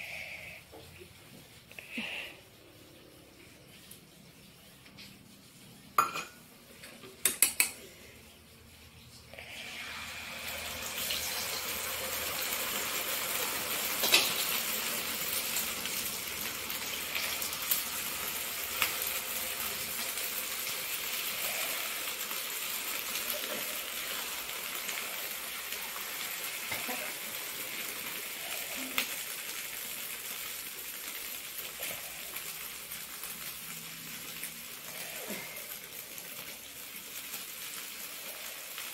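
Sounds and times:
flatbread sizzling in oil: 0.9 - 38.9.

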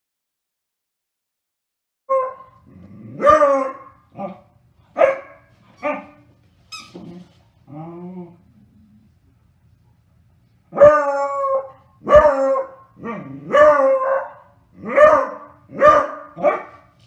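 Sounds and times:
dog barking: 2.1 - 2.6, 3.2 - 6.2, 12.0 - 12.8, 13.5 - 16.9.

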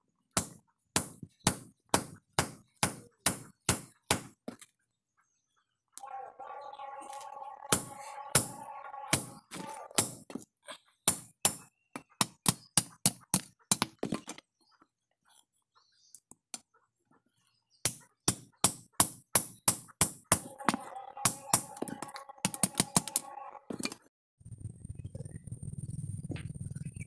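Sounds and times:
hammer striking metal on anvil: 0.4 - 4.3, 7.7 - 9.4, 10.0 - 10.2, 11.1 - 13.9, 17.9 - 21.9.

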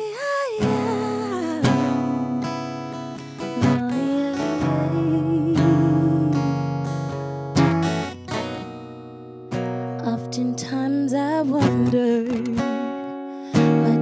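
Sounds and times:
acoustic guitar strumming: 0.0 - 14.0
woman singing wordless note: 3.6 - 6.5.

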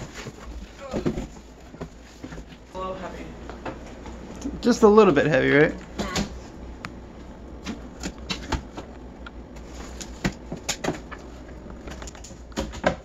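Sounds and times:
cardboard rustles and scrapes: 0.0 - 2.6.

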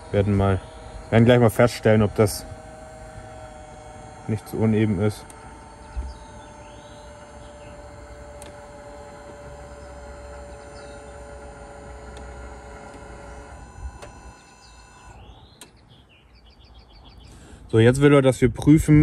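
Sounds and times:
hydraulic pump humming: 0.0 - 18.0.

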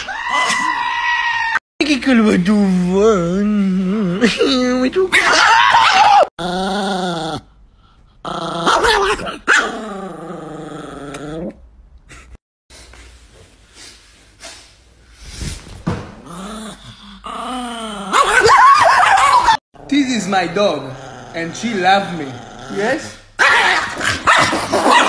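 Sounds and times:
small dog growling and yowling: 5.1 - 7.5, 8.2 - 11.6, 16.3 - 19.6.

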